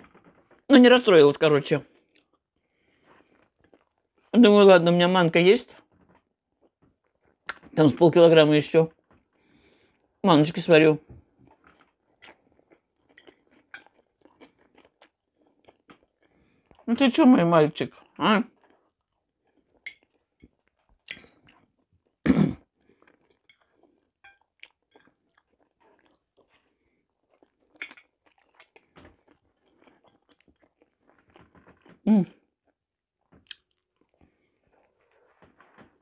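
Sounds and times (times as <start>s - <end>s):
person chewing food: 1.8s - 4.3s, 5.7s - 7.8s, 11.0s - 36.0s
mouth clicks and smacks: 7.4s - 7.7s.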